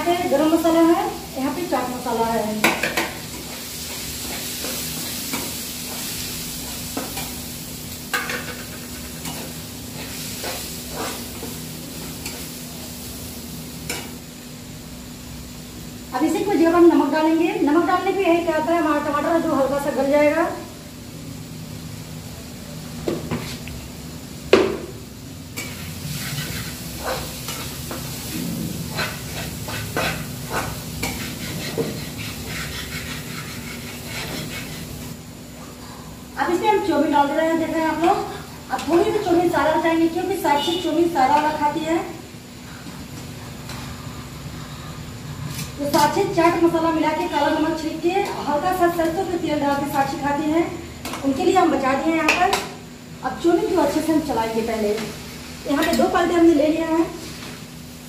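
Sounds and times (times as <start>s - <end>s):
food sizzling in hot oil: 0.0s - 58.0s
metal spatula scraping pan: 25.6s - 35.0s.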